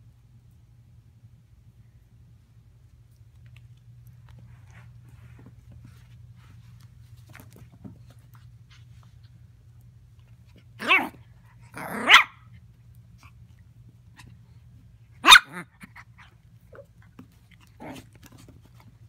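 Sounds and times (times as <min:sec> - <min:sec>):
puppy barking: 0:10.8 - 0:11.2, 0:11.8 - 0:12.5, 0:15.2 - 0:15.9.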